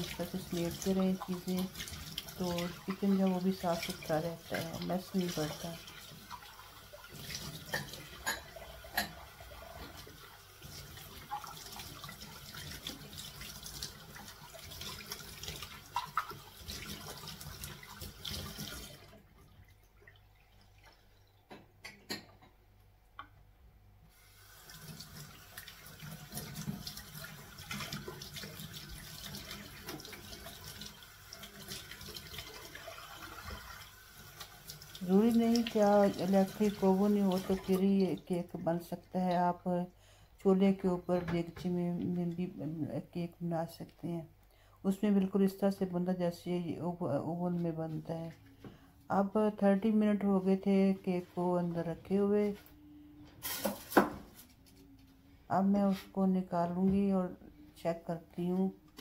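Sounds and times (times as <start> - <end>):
dishes clinking: 7.7 - 9.2, 21.5 - 22.6.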